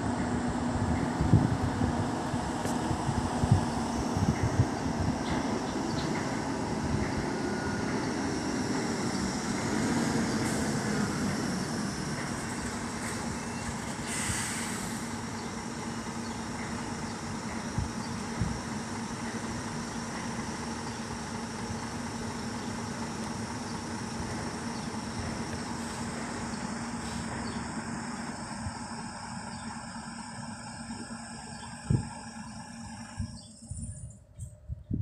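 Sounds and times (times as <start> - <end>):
truck diesel engine running: 0.0 - 33.9
short hiss: 13.9 - 15.1.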